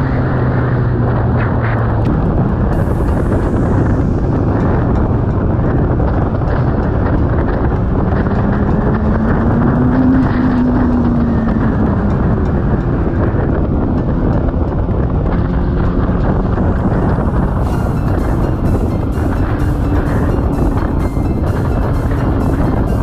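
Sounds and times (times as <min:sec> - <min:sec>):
motorcycle engine: 0:00.0 - 0:23.0
road noise: 0:00.0 - 0:23.0
wind rush: 0:00.0 - 0:23.0.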